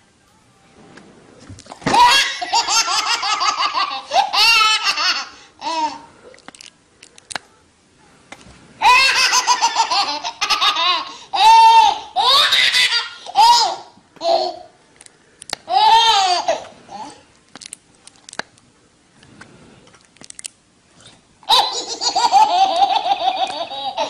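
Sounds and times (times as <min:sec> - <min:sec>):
baby laughing: 0:01.9 - 0:06.0, 0:08.8 - 0:14.7, 0:15.7 - 0:17.1, 0:21.5 - 0:24.0.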